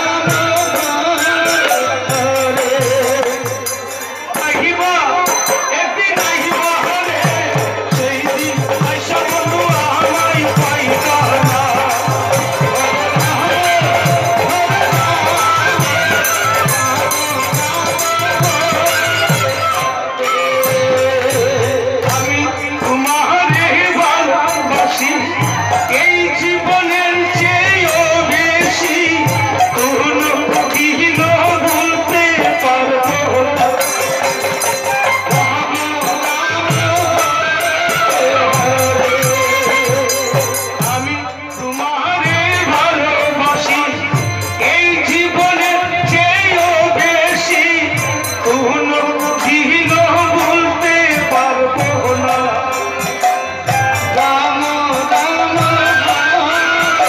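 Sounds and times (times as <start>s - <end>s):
hand drum beat: 0.0s - 19.9s
group of men singing: 0.0s - 57.0s
jingling hand cymbals: 0.0s - 57.0s.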